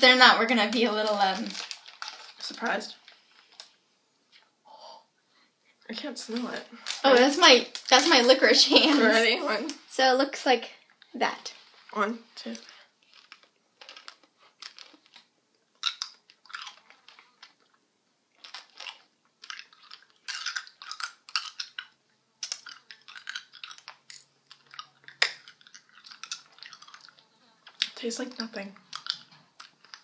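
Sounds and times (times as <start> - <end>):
candy cracking: 0.0 - 4.5, 5.9 - 9.0, 11.9 - 30.0
hard candy crunching: 0.1 - 4.5, 5.9 - 9.0, 12.4 - 30.0
wet mouth clicks: 15.8 - 17.8, 18.4 - 28.0, 28.8 - 30.0.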